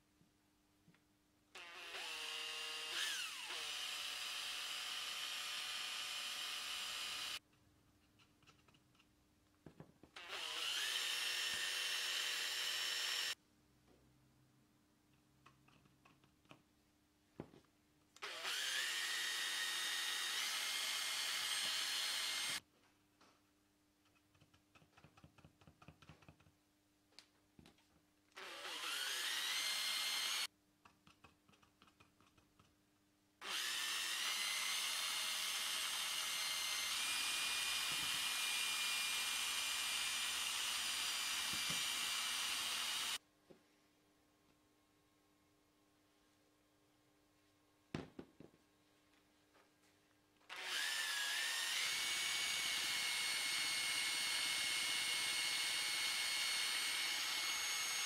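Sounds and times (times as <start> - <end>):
electric drill whining: 1.6 - 7.4, 10.2 - 13.4, 18.2 - 22.6, 28.4 - 30.5, 33.4 - 43.2, 50.5 - 58.0.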